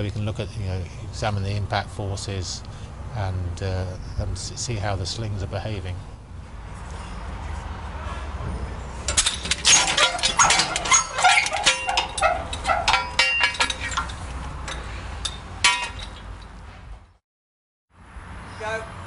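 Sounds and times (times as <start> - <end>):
metallic clanking and rattling: 8.5 - 17.0
metal mass falling and caught: 9.1 - 16.6.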